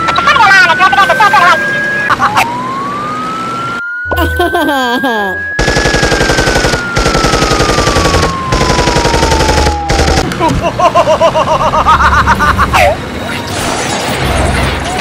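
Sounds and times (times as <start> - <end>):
machine-gun fire: 5.6 - 10.3.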